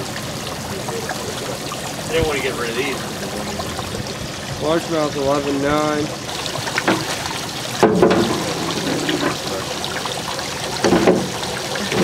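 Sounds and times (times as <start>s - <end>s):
water running and splashing: 0.0s - 12.0s.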